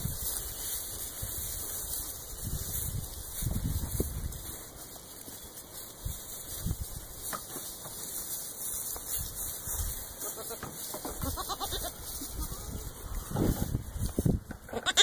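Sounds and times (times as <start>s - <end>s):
footsteps in straw: 0.0s - 15.0s
goat bleating: 10.2s - 13.6s, 14.6s - 15.0s.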